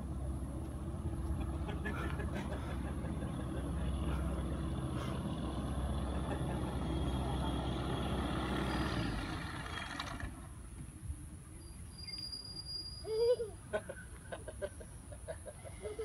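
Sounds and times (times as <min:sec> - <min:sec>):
microlight engine and propeller rumble: 0:00.0 - 0:11.5.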